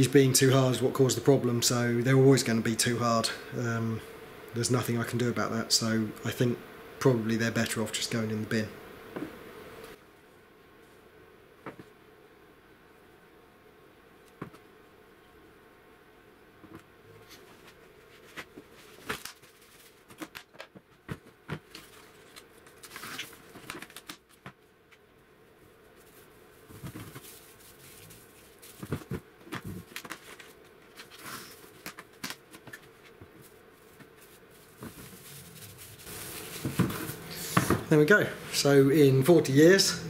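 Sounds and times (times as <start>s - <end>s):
cling film rustling: 16.7s - 25.1s, 25.7s - 37.8s.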